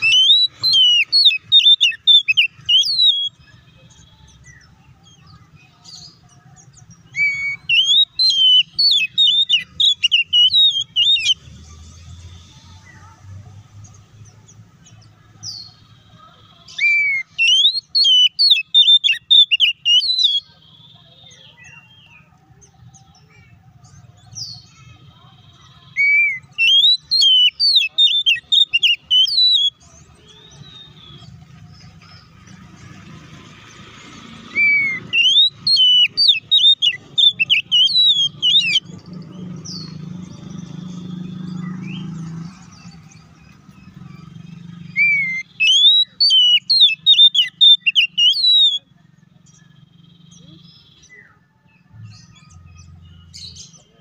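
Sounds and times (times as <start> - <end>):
bird singing whistled notes: 0.0 - 13.1, 14.9 - 32.6, 34.2 - 54.0.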